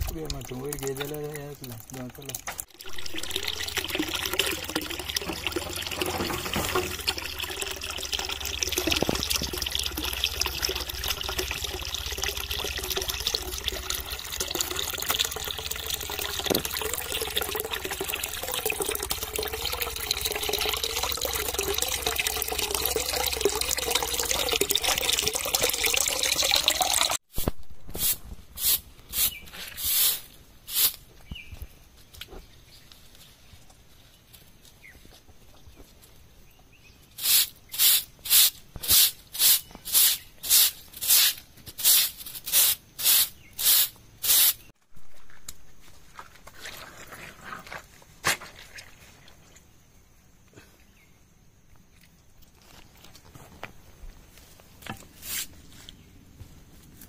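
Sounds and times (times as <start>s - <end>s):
juice trickling down rock: 0.0s - 27.2s, 46.1s - 49.8s, 52.0s - 53.7s.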